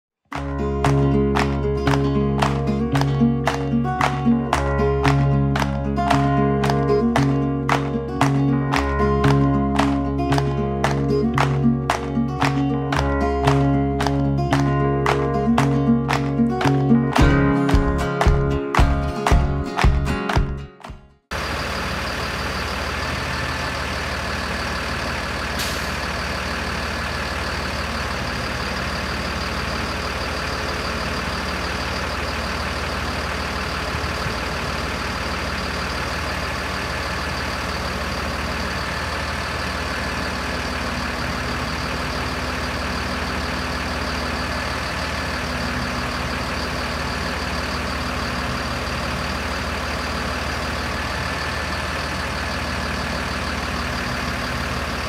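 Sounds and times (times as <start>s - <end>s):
diesel engine idling: 21.3s - 55.0s.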